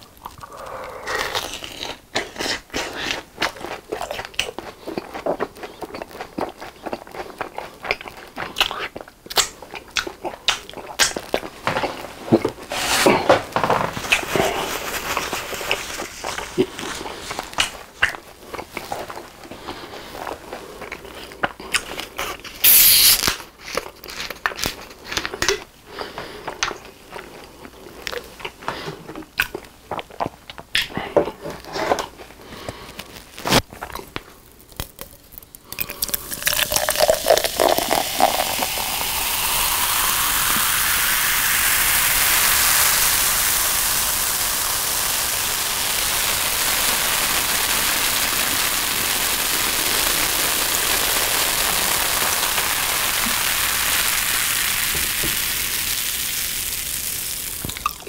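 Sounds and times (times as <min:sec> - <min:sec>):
carbonation fizzing: 0:22.3 - 0:23.4, 0:35.2 - 0:58.0
bottle cap hiss of escaping gas: 0:22.6 - 0:23.4, 0:36.0 - 0:43.8
liquid glugging into mug: 0:36.0 - 0:40.8.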